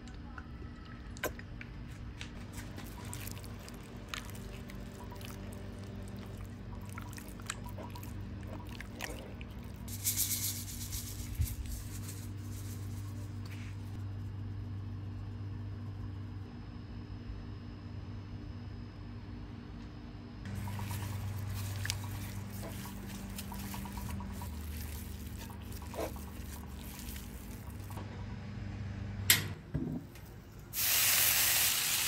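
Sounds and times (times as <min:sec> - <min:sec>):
steady low hum: 0:00.0 - 0:30.8
wet squelching of raw chicken: 0:02.3 - 0:14.0, 0:20.5 - 0:28.0.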